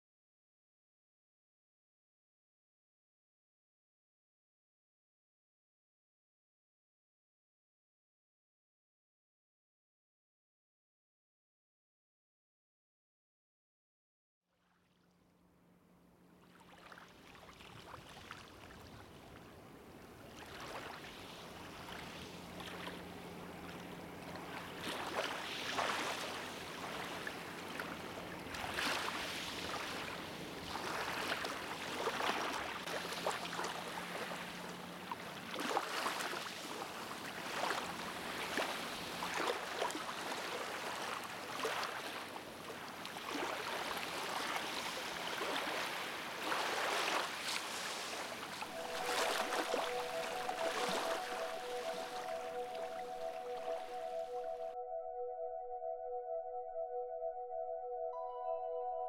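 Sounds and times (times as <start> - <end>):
waves lapping on a pebbly shore: 20.2 - 23.2, 24.4 - 52.4.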